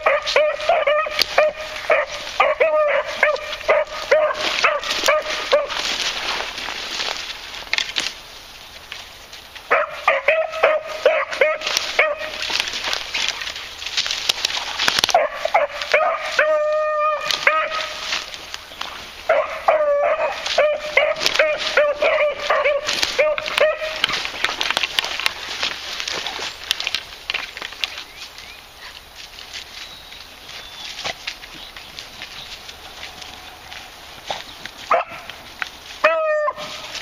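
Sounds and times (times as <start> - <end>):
dogs baying and yelping: 0.0 - 7.2, 9.6 - 26.7, 32.2 - 37.0
footsteps through dry leaves: 0.0 - 37.0.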